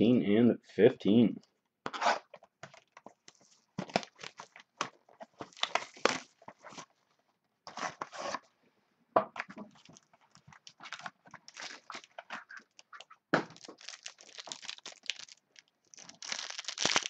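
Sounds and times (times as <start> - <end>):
cardboard and wrapping tearing: 10.6 - 12.6, 13.6 - 17.0.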